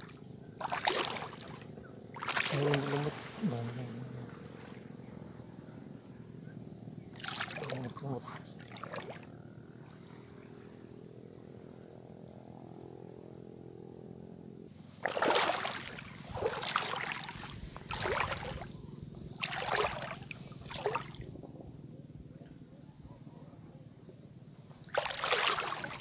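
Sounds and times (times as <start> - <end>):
wading splashes in shallow water: 0.0 - 5.0, 7.1 - 10.7, 14.8 - 21.4, 24.8 - 26.0
low steady motor hum: 0.0 - 26.0.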